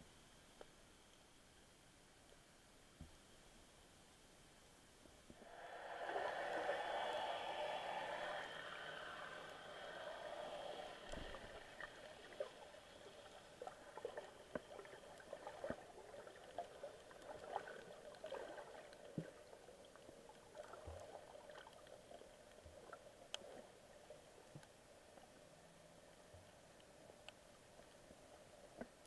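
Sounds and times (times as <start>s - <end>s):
low watery hiss: 0.0s - 29.0s.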